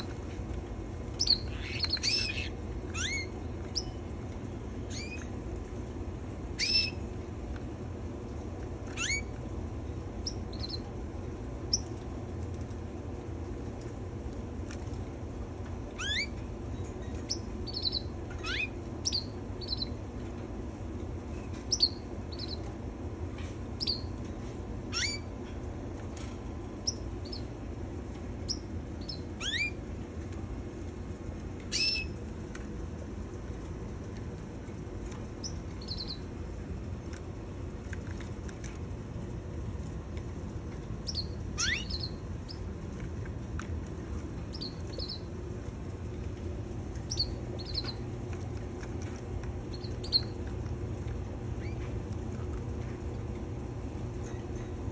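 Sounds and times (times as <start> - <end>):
steady low hum: 0.0 - 54.9
canaries chirping: 1.0 - 4.1, 4.8 - 5.6, 6.5 - 7.2, 8.8 - 12.6, 15.9 - 20.1, 21.3 - 22.8, 23.7 - 25.4, 26.2 - 27.6, 28.4 - 29.9, 31.6 - 32.2, 35.0 - 36.3, 40.9 - 43.0, 44.4 - 45.4, 46.9 - 50.8, 51.5 - 52.5.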